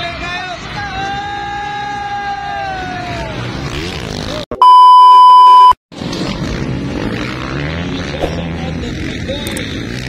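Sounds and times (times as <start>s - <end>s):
motocross bike engine whine: 0.1s - 10.0s
electronic beep: 4.6s - 5.8s.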